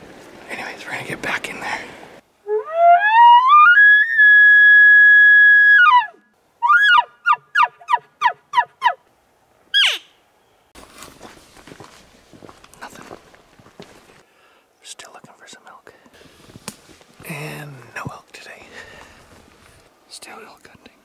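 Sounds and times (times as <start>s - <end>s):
elk bugle call whistle and chuckles: 2.4s - 9.0s.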